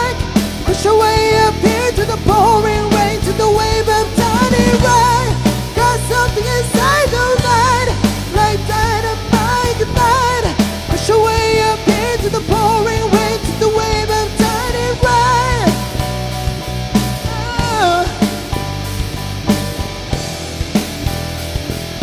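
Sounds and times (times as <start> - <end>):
high wordless vocal: 0.0 - 16.0, 17.2 - 18.6
live rock band playing: 0.0 - 22.0.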